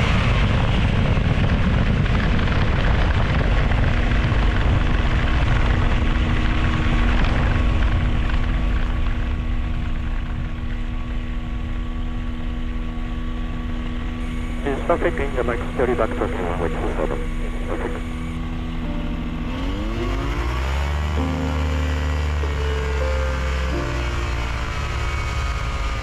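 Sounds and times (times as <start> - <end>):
ultralight aircraft engine and propeller: 0.0 - 26.0
heavy rushing noise: 14.2 - 26.0.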